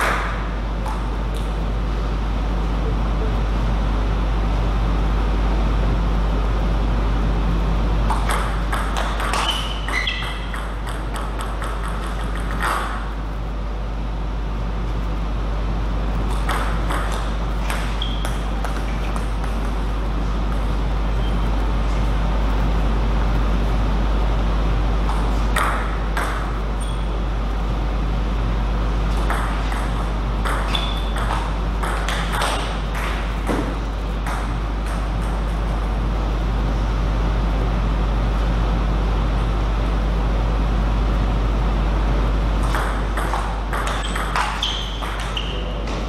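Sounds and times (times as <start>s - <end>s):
table tennis ball hitting rackets: 8.1s - 13.1s, 16.3s - 20.7s, 25.1s - 26.6s, 29.1s - 35.8s, 42.6s - 46.0s.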